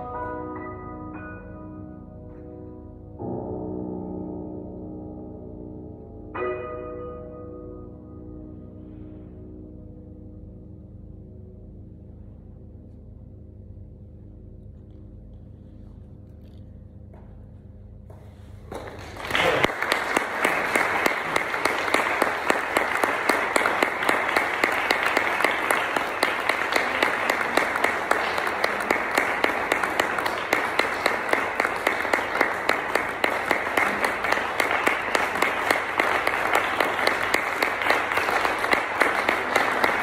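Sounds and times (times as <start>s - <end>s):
piano chord: 0.0s - 19.6s
audience applause: 18.7s - 40.0s.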